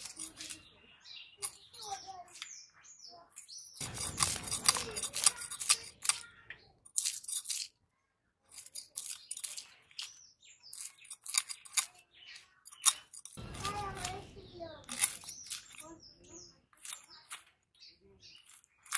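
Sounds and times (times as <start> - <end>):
fish scales scraped on blade: 3.6 - 6.2.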